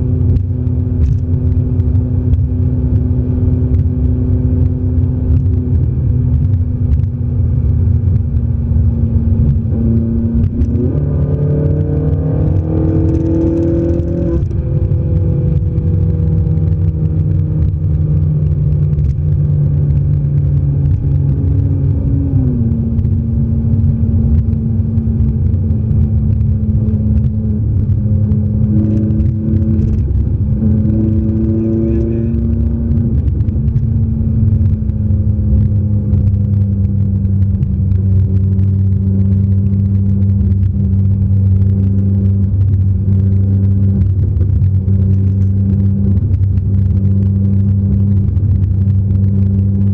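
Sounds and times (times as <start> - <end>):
car engine from inside cabin: 0.0 - 49.9
road rumble: 0.0 - 49.9.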